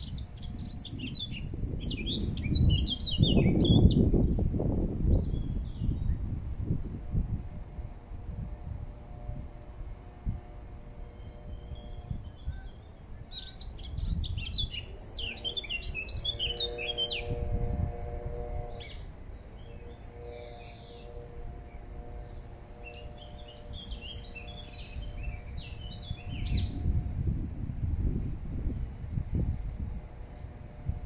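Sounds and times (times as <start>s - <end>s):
bird singing warbling notes: 0.0s - 4.0s, 10.0s - 27.1s.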